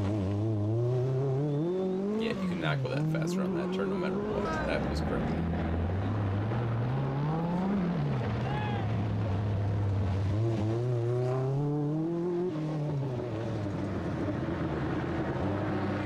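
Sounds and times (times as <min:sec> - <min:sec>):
rally car engine revving: 0:00.0 - 0:16.0.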